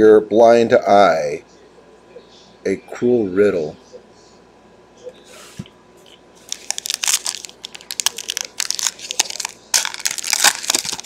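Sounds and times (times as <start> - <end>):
wrapper crackling: 6.4 - 11.0.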